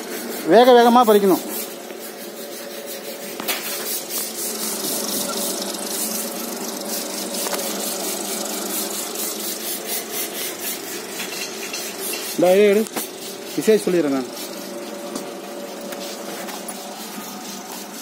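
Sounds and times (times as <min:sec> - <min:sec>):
motor hum: 0:01.6 - 0:18.0
rotating drum rattling: 0:03.8 - 0:18.0.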